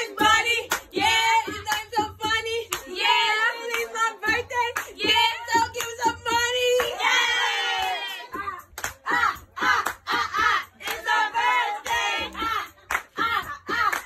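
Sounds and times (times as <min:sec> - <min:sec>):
sharp claps: 0:00.0 - 0:03.0, 0:03.7 - 0:07.0, 0:07.8 - 0:11.1, 0:11.8 - 0:14.0
voices singing and whooping: 0:00.0 - 0:14.0.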